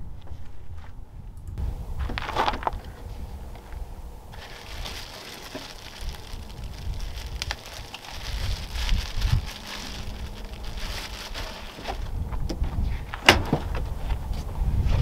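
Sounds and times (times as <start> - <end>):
plastic bag rustling: 4.3 - 12.2.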